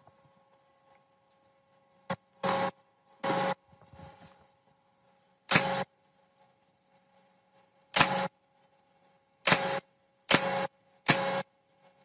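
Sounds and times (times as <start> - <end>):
nail gun firing: 5.5 - 5.9, 7.9 - 8.3, 9.4 - 11.4.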